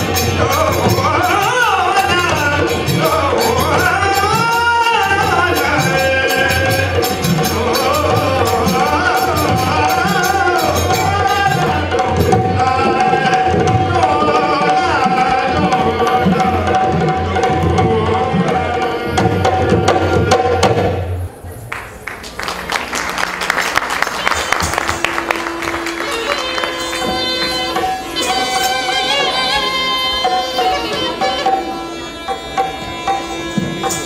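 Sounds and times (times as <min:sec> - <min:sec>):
people clapping: 0:21.6 - 0:27.8
wavering melody: 0:24.8 - 0:34.0.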